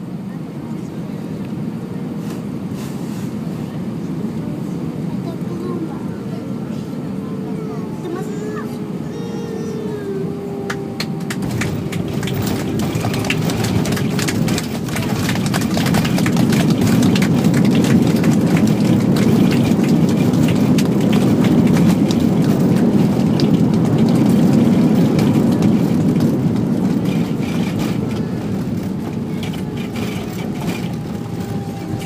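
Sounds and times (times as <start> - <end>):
aircraft cabin rumble: 0.0 - 32.0
cabin rattles and bumps: 11.4 - 23.0.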